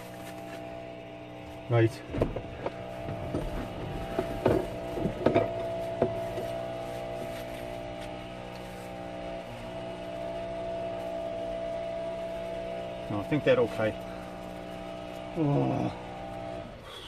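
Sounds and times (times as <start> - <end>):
van engine idling: 0.0 - 17.0
car door opening: 2.0 - 6.4.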